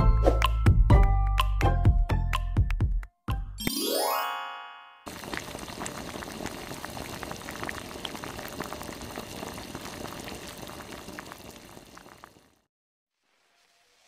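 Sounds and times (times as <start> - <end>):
liquid boiling in a pot: 5.1 - 14.0.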